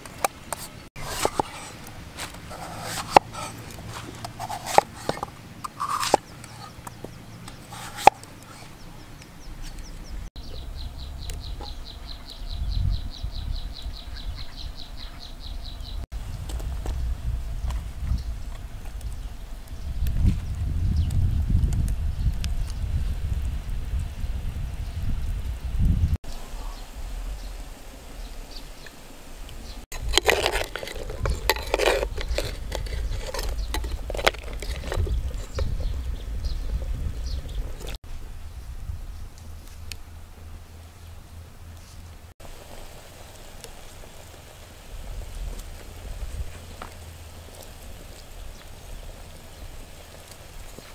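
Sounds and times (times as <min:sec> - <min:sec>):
wood fire crackling: 0:00.0 - 0:12.6, 0:15.8 - 0:50.9
pot boiling with bubbling pops: 0:16.2 - 0:26.0, 0:28.8 - 0:38.0, 0:42.4 - 0:50.9.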